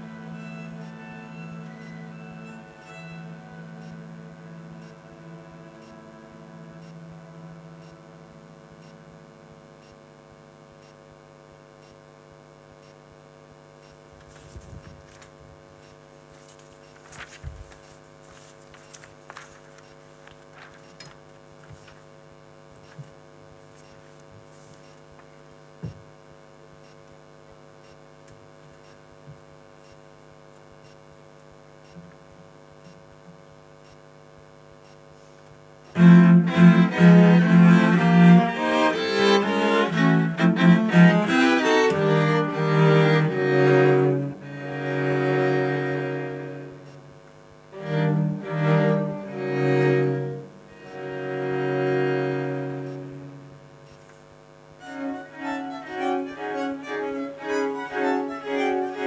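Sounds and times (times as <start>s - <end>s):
string quartet playing: 0.0s - 8.8s, 35.9s - 47.0s, 47.7s - 53.6s, 54.8s - 59.0s
electrical hum: 0.0s - 59.0s.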